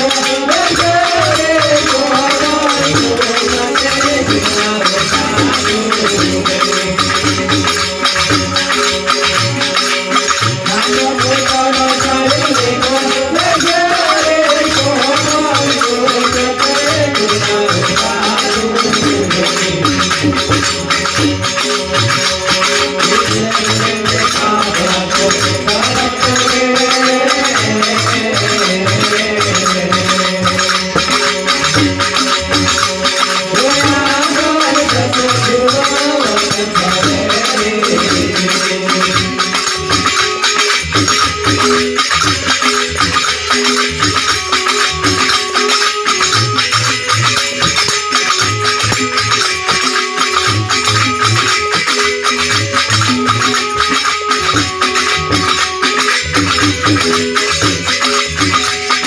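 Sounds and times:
drum beating: 0:00.0 - 0:59.0
instrumental melody line: 0:00.0 - 0:59.0
shaker: 0:00.0 - 0:59.0.

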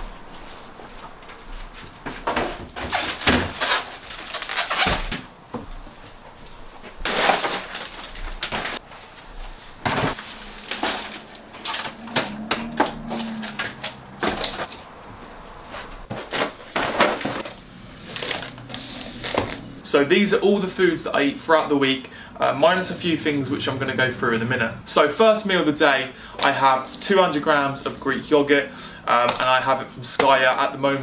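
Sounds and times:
groceries knocking and clattering: 0:01.1 - 0:14.9, 0:15.6 - 0:19.7, 0:29.2 - 0:30.6
plastic bags rustling: 0:02.6 - 0:19.8.

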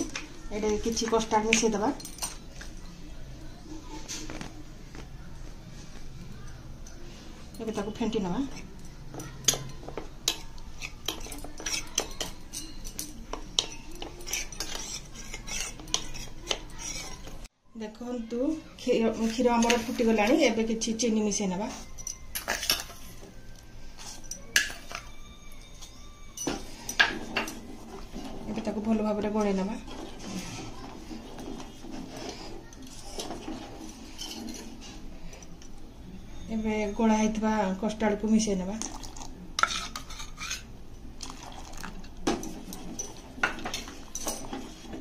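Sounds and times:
metal spoon clinking in saucepan: 0:00.0 - 0:02.7, 0:06.4 - 0:17.3, 0:21.7 - 0:23.2, 0:24.0 - 0:28.4
spoon scraping and stirring in steel: 0:00.0 - 0:04.6, 0:05.7 - 0:17.5, 0:18.8 - 0:45.0.

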